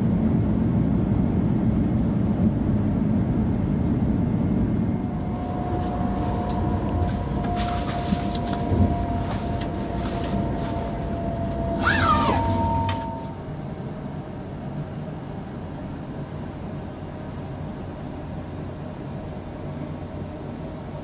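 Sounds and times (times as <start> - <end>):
train rumble with two-tone whine: 0.0 - 21.0
falling squeal: 5.1 - 13.4.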